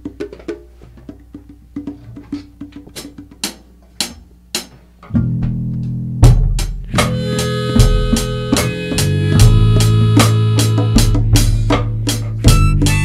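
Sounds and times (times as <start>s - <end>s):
rock band playing: 5.1s - 13.0s.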